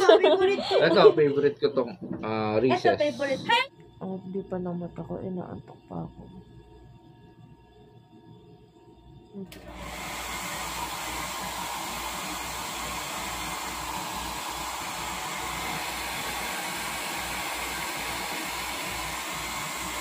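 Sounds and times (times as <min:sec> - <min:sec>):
hair dryer blowing: 0:09.4 - 0:20.0.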